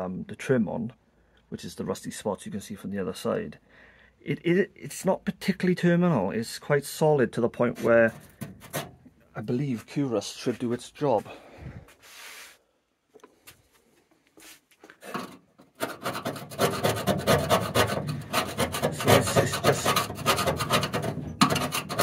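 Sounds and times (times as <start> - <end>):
hand scraping steel panel: 7.6 - 9.1, 14.4 - 22.0.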